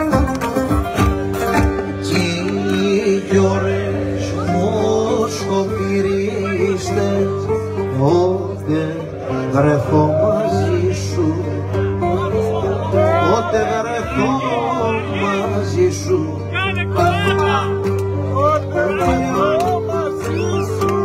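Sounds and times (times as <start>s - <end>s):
plucked lute: 0.0s - 21.0s
man singing folk song: 1.6s - 21.0s
steady low drone: 2.1s - 7.9s.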